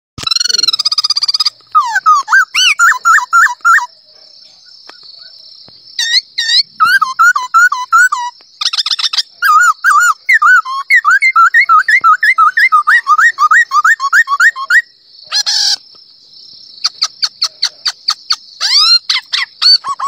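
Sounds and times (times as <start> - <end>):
man whistling bird calls: 6.0 - 14.8.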